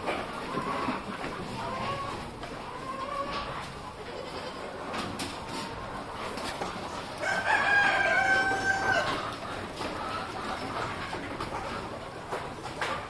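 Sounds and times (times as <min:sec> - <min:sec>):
farm animal call: 0:05.5 - 0:11.2.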